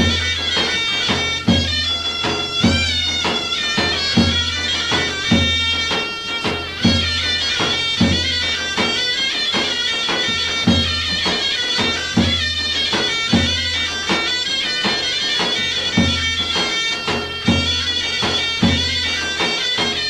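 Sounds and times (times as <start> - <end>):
drum strokes: 0.0 - 20.0
shrill reed pipe tune: 0.0 - 20.0.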